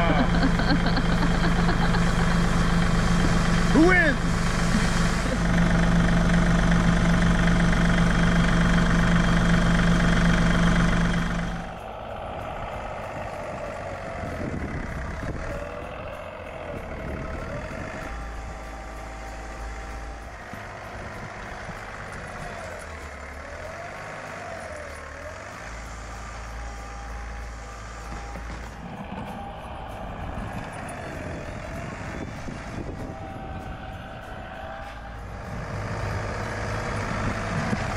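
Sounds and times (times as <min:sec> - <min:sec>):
tractor diesel engine: 0:00.0 - 0:37.9.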